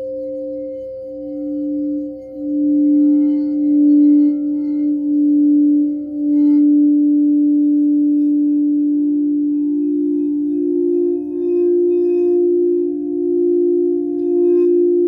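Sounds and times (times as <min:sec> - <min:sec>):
higher singing bowl tone: 0:00.0 - 0:15.0
singing bowl low tone: 0:00.0 - 0:15.0.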